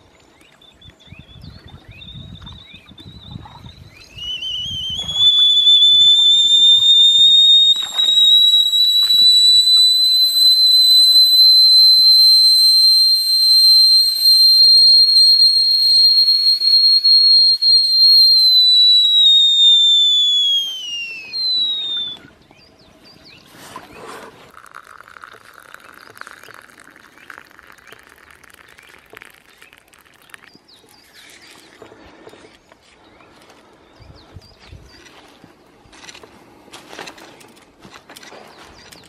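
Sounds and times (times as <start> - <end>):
kettle whistling: 4.0 - 22.3, 24.5 - 30.4.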